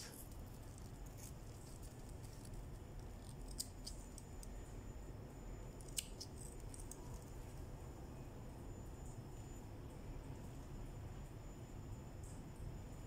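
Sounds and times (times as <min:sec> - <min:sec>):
small scissors snipping: 0:05.8 - 0:07.0.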